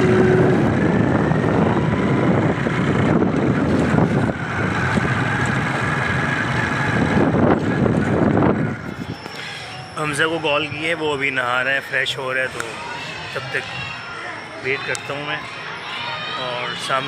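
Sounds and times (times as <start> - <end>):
motorcycle engine running: 0.0 - 9.2
wind noise on microphone: 0.0 - 9.3.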